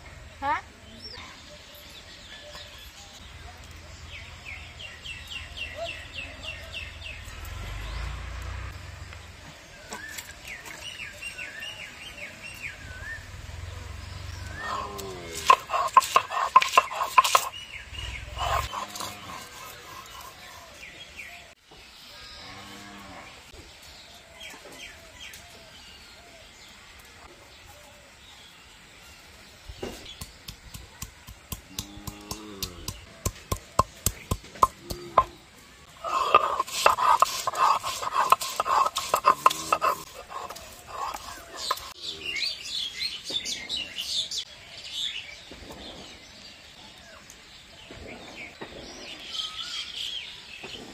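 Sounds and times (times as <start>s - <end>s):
small birds singing: 0.0s - 50.9s
stone grinding garlic: 15.2s - 17.6s, 18.3s - 20.7s, 36.0s - 42.0s
stone pestle knocking on slab: 30.2s - 35.3s
rapid run of sharp bird notes: 36.0s - 42.0s.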